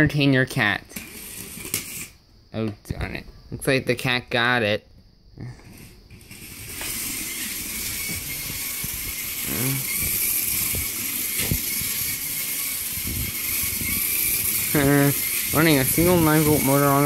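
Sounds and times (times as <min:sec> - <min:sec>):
toy train motor whirring: 0:00.9 - 0:02.2, 0:05.4 - 0:17.0
thin high whine: 0:05.4 - 0:17.0.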